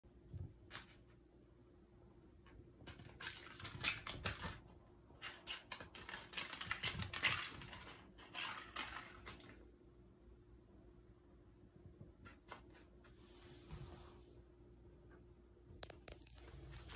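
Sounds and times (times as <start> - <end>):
kitten claws and toy skittering: 2.8 - 9.6.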